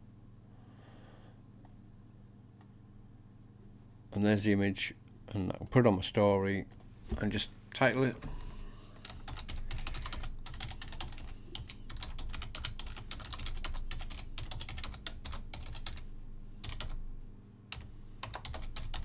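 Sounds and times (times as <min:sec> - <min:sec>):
computer keyboard typing: 0:09.0 - 0:17.0, 0:17.7 - 0:19.0.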